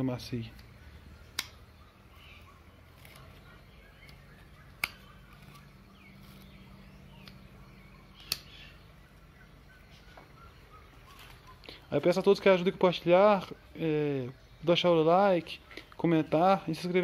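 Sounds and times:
pocketknife blade snapping open: 0:08.2 - 0:08.6.

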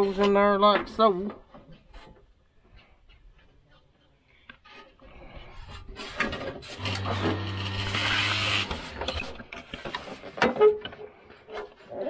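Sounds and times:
small motor whirring: 0:06.8 - 0:09.4.

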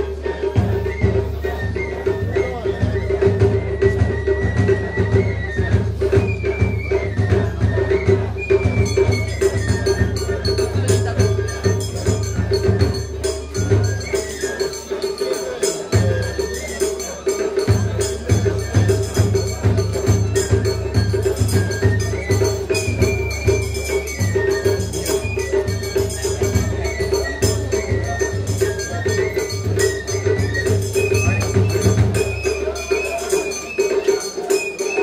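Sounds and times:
high flute melody: 0:00.0 - 0:35.0
jingling clacking percussion: 0:00.0 - 0:35.0
steady drum beats: 0:00.0 - 0:35.0.

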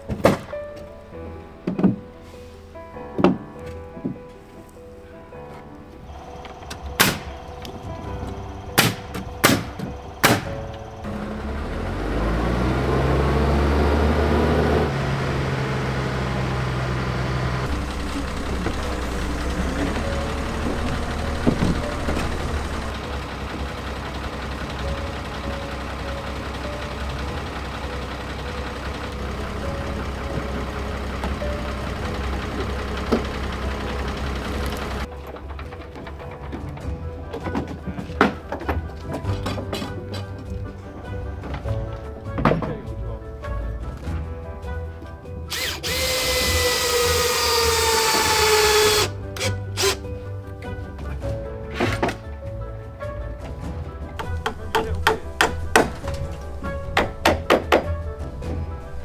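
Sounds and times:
heavy engine revving: 0:06.1 - 0:36.2, 0:45.5 - 0:50.1.

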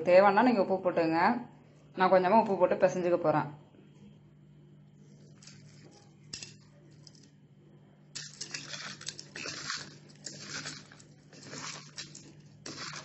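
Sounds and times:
wet crunchy rustling of slices: 0:08.2 - 0:13.0.

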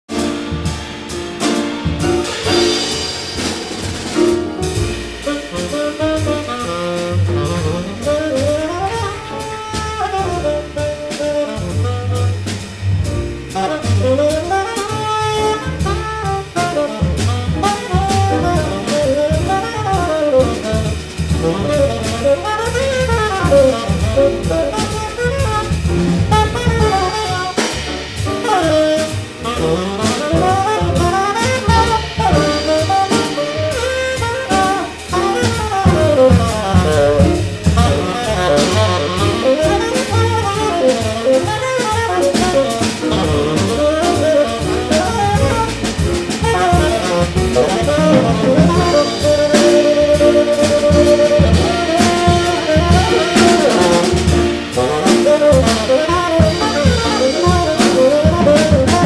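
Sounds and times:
grand piano: 0:00.0 - 0:59.0
drum kit cymbals keeping time: 0:00.1 - 0:59.0
walking upright bass: 0:00.1 - 0:59.0
tenor saxophone solo: 0:04.9 - 0:59.0.

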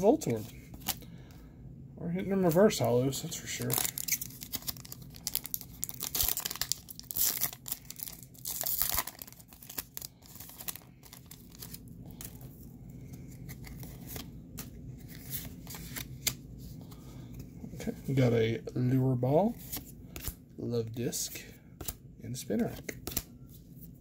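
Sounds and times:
crinkling and rustling cards: 0:00.1 - 0:01.4, 0:02.2 - 0:18.3, 0:21.3 - 0:24.0
foil wrapper tearing: 0:03.6 - 0:11.8.

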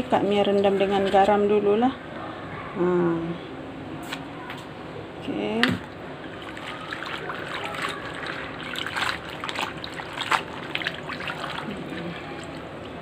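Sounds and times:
hands splashing in basin of water: 0:05.7 - 0:12.7.

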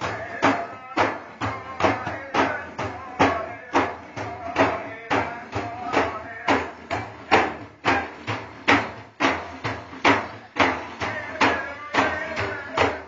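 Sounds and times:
loud percussive beats: 0:00.0 - 0:13.0
men's voices: 0:10.3 - 0:13.0.

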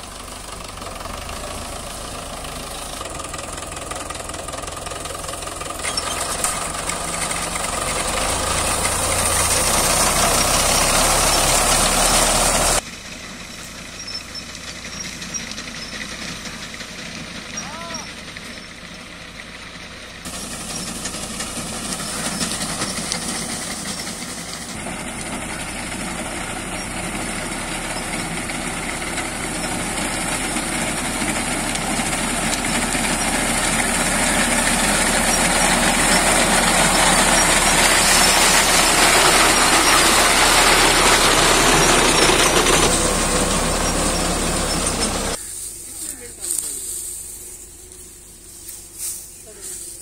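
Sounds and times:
tractor engine running: 0:00.0 - 0:50.0
reaper cutting wheat: 0:05.1 - 0:12.8, 0:20.2 - 0:50.0.

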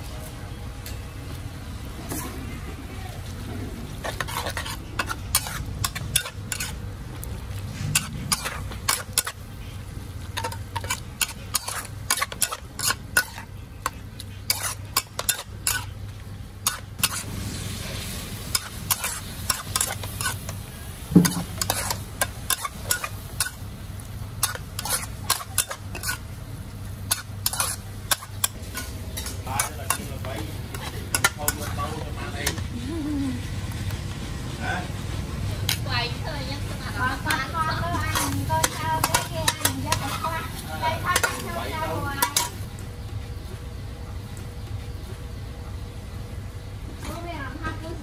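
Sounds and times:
food sizzling: 0:00.0 - 0:48.0
steady low hum: 0:00.0 - 0:48.0
metal spatula scraping a wok: 0:03.4 - 0:23.7, 0:24.3 - 0:32.6, 0:35.7 - 0:42.7.

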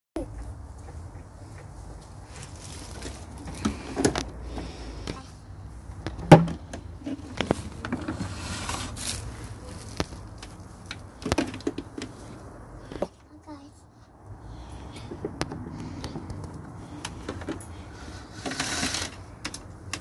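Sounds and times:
hollow plastic knocks and clatter: 0:06.0 - 0:08.4, 0:10.0 - 0:12.3, 0:15.1 - 0:17.7.

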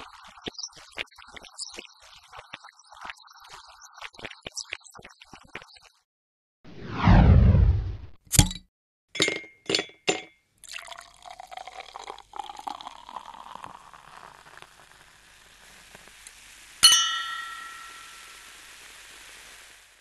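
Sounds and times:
glass clinks: 0:09.2 - 0:10.4, 0:16.8 - 0:18.4
liquid pouring into a glass: 0:09.2 - 0:16.2.

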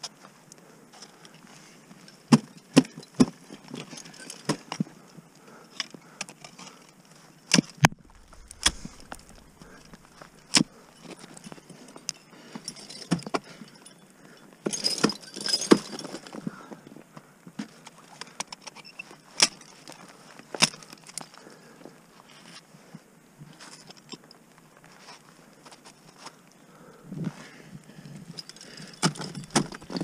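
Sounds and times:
metal climbing gear clinking: 0:00.9 - 0:04.9, 0:07.8 - 0:16.6, 0:28.0 - 0:30.0.

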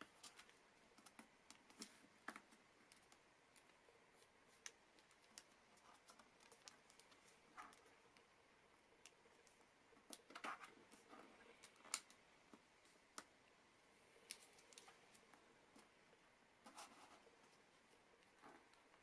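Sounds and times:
paper crinkling and crackling: 0:00.0 - 0:08.3.

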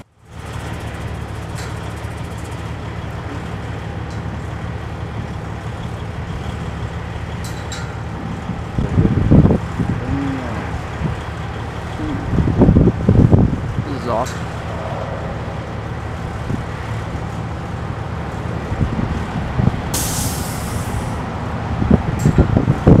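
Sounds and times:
steady low drone: 0:00.0 - 0:23.0
thunder rumbling: 0:08.2 - 0:13.8.

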